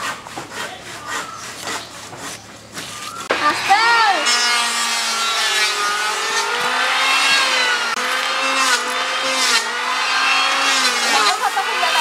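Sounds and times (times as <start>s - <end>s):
electric hand planer cutting wood: 3.2s - 12.0s.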